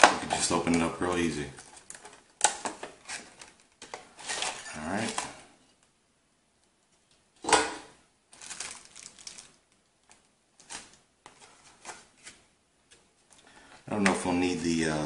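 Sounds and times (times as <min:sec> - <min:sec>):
plastic packaging clicks and crinkles: 0:00.0 - 0:05.4, 0:08.3 - 0:13.5
sharp plastic crack: 0:01.7 - 0:04.1.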